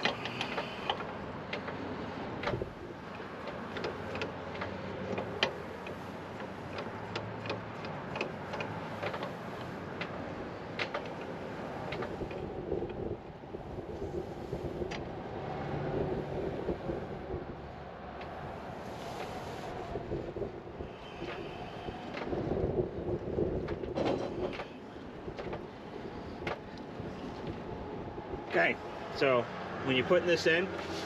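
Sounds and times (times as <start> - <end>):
steady background rumble: 0.0 - 31.0
wind noise on microphone: 2.0 - 3.1, 10.2 - 29.1.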